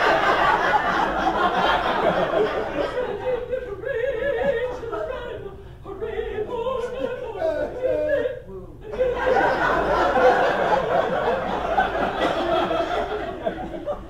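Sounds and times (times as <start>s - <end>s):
theatre audience laughing: 0.0s - 3.7s, 8.9s - 14.0s
women singing together: 1.5s - 12.6s.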